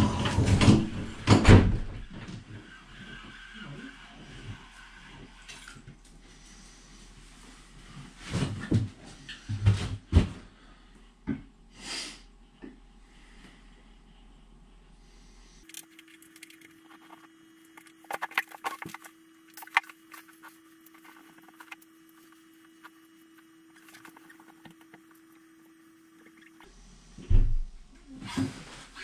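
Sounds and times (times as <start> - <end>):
faint steady hum: 0.0 - 29.0
handling clicks and scrapes: 15.6 - 26.7.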